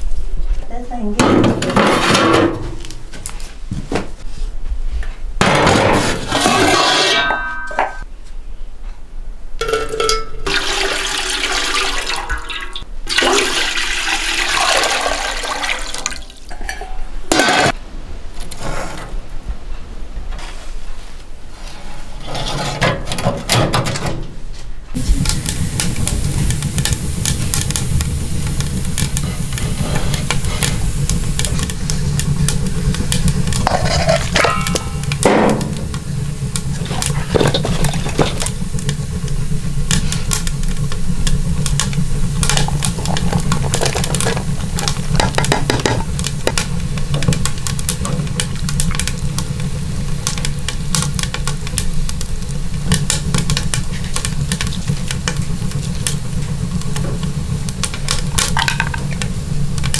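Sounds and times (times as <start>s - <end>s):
metal knocks and scrapes on stove: 1.2s - 2.8s, 5.4s - 8.0s, 33.6s - 36.0s
steel pot set on stove: 5.5s - 8.0s, 9.6s - 17.8s, 25.0s - 59.9s.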